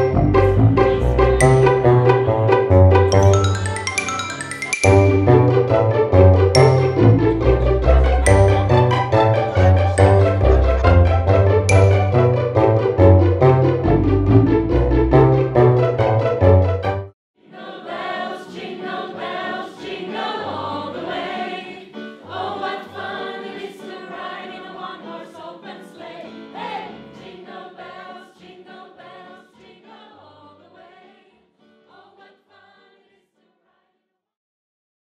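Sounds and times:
choir singing a christmas song: 0:00.0 - 0:13.2, 0:17.4 - 0:34.0
piano accompaniment: 0:00.0 - 0:17.1.

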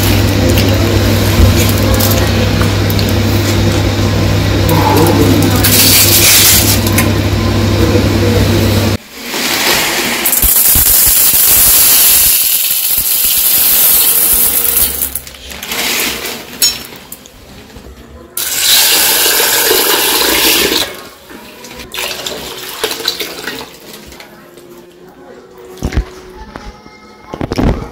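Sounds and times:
dry pearls pouring into steel bowl: 0:09.2 - 0:16.2.

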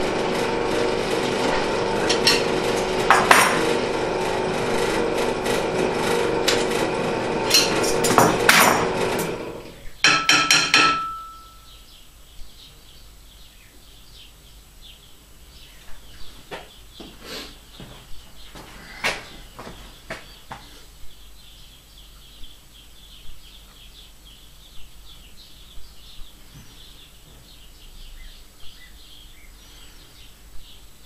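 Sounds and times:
drill press motor running: 0:00.0 - 0:09.8
metal clanks: 0:02.0 - 0:03.8, 0:07.4 - 0:11.7
sharp metal knocks: 0:02.1 - 0:03.7, 0:07.5 - 0:09.4, 0:10.0 - 0:11.7.

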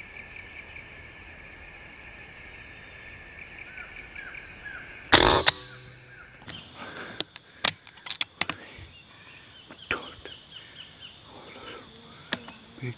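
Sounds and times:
air rifle shot crack: 0:05.1 - 0:06.2.

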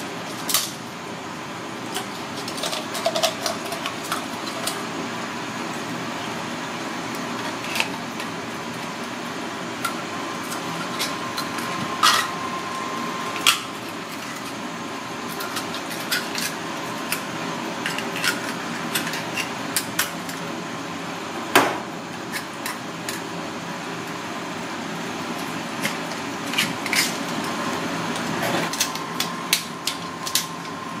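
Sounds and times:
knife clicking and scraping shells: 0:17.8 - 0:20.4, 0:25.8 - 0:27.2.

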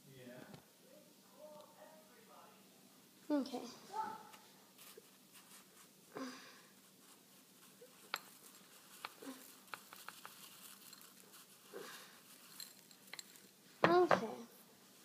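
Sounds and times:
stone mortar clicking on ceramic bowl: 0:09.0 - 0:10.4.

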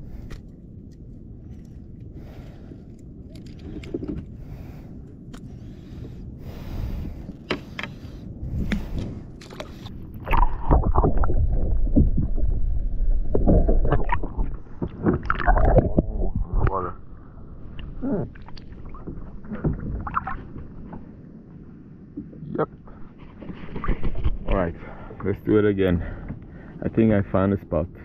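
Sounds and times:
water against hull: 0:00.0 - 0:26.8
deep rumble: 0:00.0 - 0:27.3.

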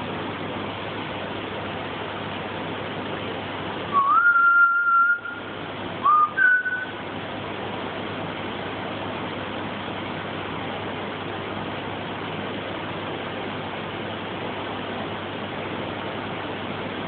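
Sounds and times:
person whistling rising notes: 0:04.0 - 0:06.9.

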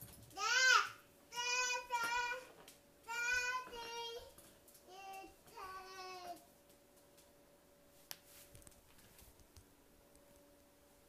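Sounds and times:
toddler babbling sing-song: 0:00.4 - 0:06.5.

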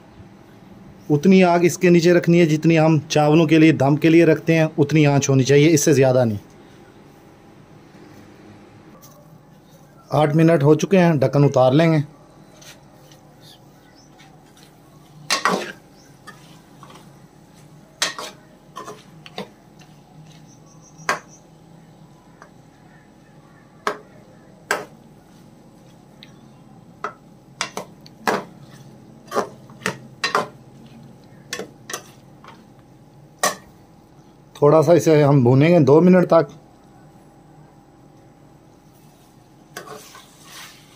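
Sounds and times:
faint steady hum: 0:00.0 - 0:40.9
spatula scraping metal pot: 0:18.0 - 0:19.2, 0:39.8 - 0:40.9.

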